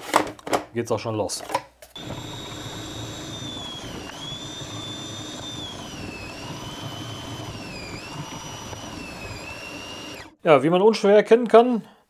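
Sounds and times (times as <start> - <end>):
food processor motor whine: 2.0 - 10.4.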